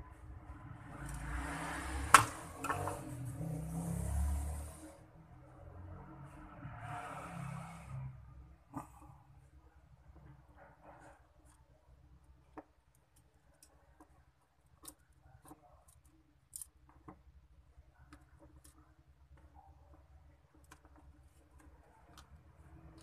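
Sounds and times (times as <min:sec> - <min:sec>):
small clicks and taps of wires: 0:18.0 - 0:23.0.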